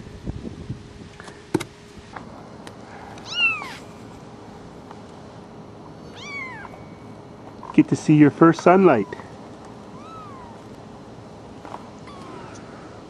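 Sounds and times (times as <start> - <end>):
kittens mewing: 2.8 - 4.0, 5.9 - 7.0, 8.8 - 10.9, 11.9 - 13.0.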